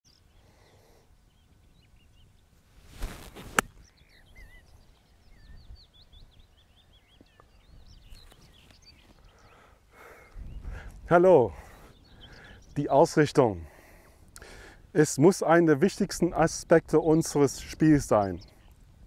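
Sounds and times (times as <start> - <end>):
birds chirping: 0.0 - 19.0
golf club swishing through air: 2.7 - 3.9
golf club striking ball: 3.4 - 3.8.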